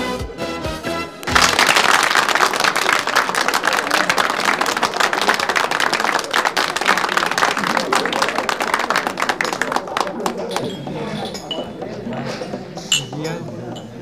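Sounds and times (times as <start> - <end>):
audience applauding: 1.2 - 12.1
voices: 2.8 - 14.0.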